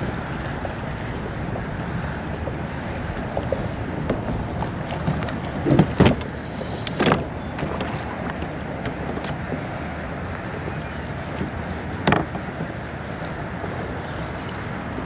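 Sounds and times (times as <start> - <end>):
person wading through water: 0.0 - 15.0
water lapping: 0.0 - 15.0
wind: 0.0 - 15.0.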